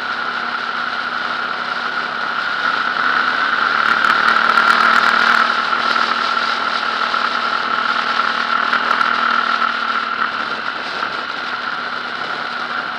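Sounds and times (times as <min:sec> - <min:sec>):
motorcycle engine running: 0:00.0 - 0:12.9
wind noise: 0:07.6 - 0:12.9.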